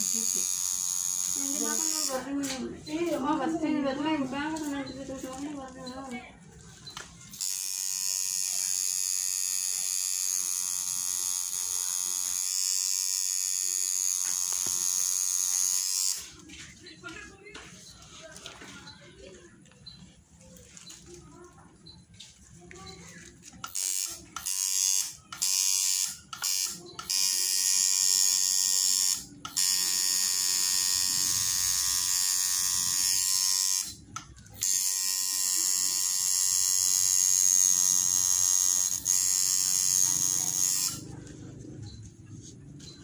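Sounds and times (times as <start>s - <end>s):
tattoo machine buzzing: 0.0s - 3.3s, 6.9s - 16.4s, 23.6s - 41.2s.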